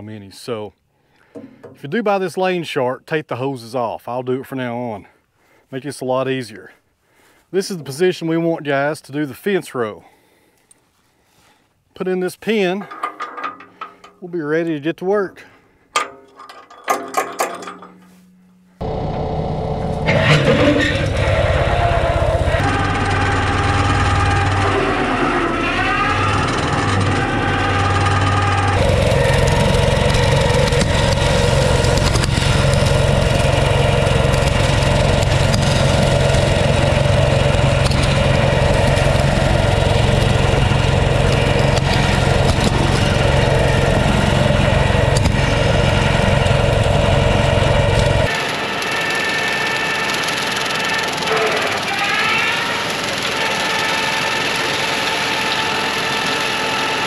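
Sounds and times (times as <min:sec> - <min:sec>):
tractor diesel engine under load: 0:18.8 - 0:57.0.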